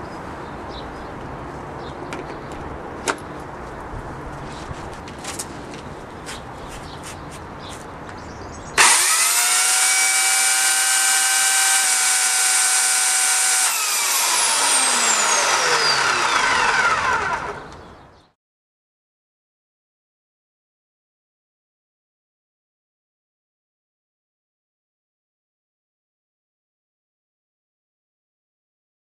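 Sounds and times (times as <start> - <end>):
electric chainsaw motor whining: 8.8 - 17.8.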